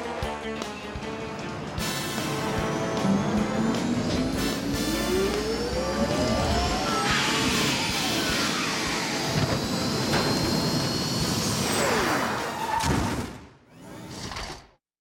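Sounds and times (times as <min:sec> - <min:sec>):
jet engine rush: 0:01.8 - 0:12.6.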